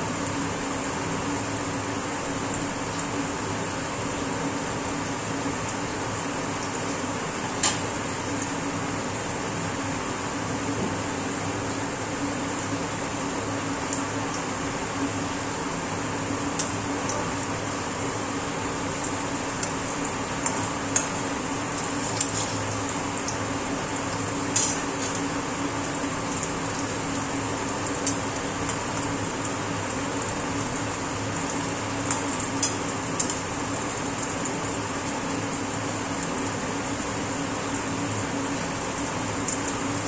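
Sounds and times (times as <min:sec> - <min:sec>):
vegetable slices sizzling in oil: 0:15.7 - 0:40.0.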